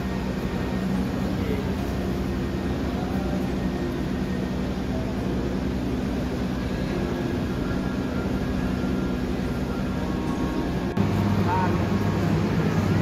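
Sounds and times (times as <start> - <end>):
dense background din: 0.0 - 13.0
low engine-like hum: 0.0 - 13.0.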